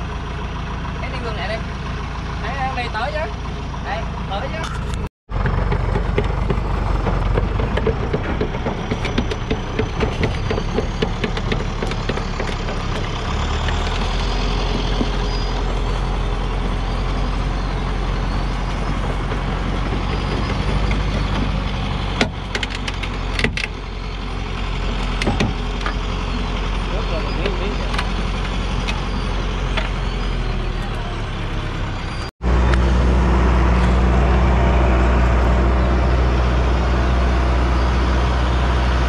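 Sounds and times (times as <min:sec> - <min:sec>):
diesel truck engine under load: 0:00.0 - 0:39.0
clicks and clanks: 0:18.7 - 0:23.8.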